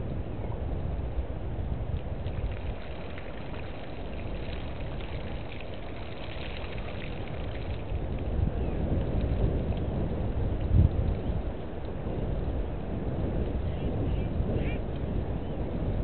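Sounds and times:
steady low rumble: 0.0s - 16.0s.

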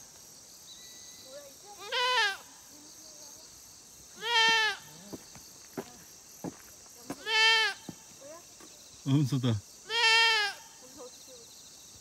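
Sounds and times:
goat bleating: 1.8s - 2.4s, 4.2s - 5.0s, 7.2s - 7.9s, 9.9s - 10.6s.

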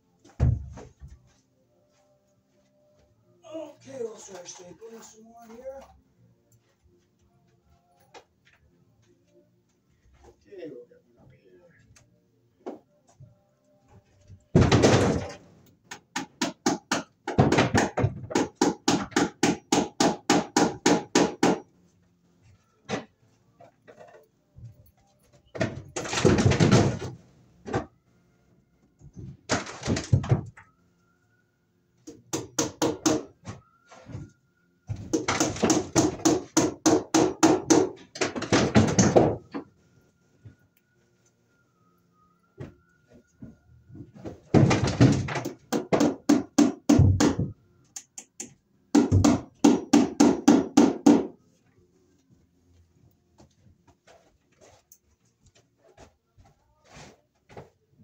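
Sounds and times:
hammer striking staples into wood: 14.5s - 21.6s, 32.0s - 33.3s, 34.9s - 39.6s, 44.5s - 51.4s.

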